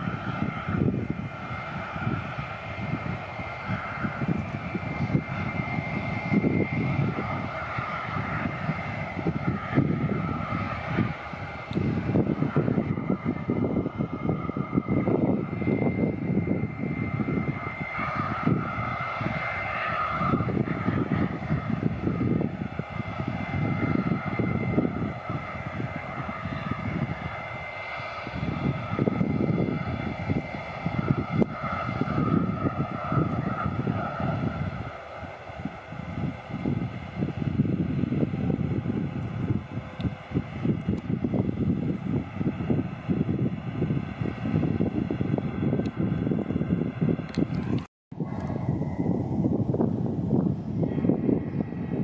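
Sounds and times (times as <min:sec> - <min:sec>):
jet engine whine: 0:00.0 - 0:52.0
low rumble: 0:00.0 - 0:52.0.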